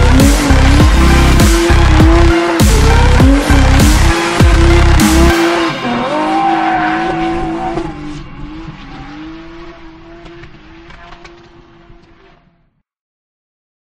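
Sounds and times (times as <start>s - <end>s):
car engine at high revs: 0.0s - 12.7s
tyres squealing on gravel: 5.6s - 12.3s.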